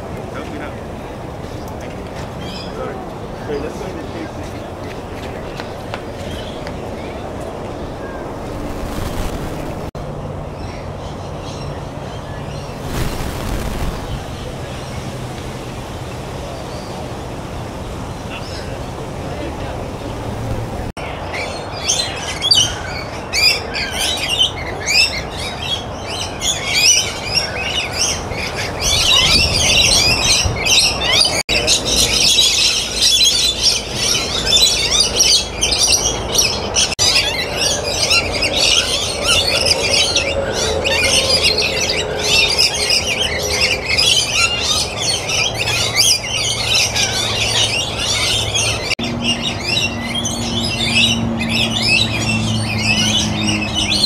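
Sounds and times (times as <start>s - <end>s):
birds chirping and squawking: 20.0s - 54.0s.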